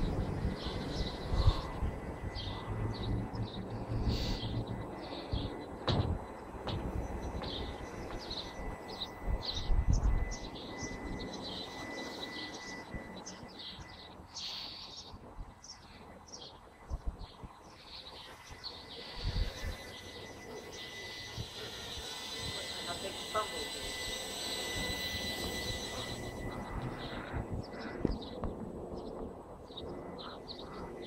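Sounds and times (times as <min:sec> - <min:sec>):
quadcopter motors whining: 0:00.0 - 0:31.0
small birds chirping: 0:00.0 - 0:31.0.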